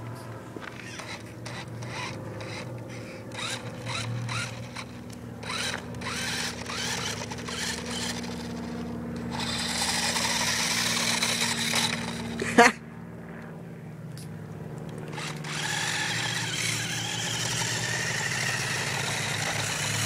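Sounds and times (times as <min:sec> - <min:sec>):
wheels crunching on snow: 0:00.0 - 0:12.6, 0:15.1 - 0:20.0
small electric motor whirring: 0:00.3 - 0:12.5, 0:14.8 - 0:20.0.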